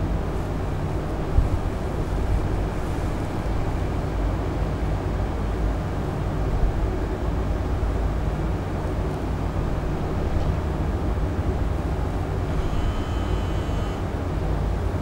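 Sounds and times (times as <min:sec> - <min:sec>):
low rumbling background noise: 0:00.0 - 0:15.0
faint hum: 0:09.7 - 0:15.0.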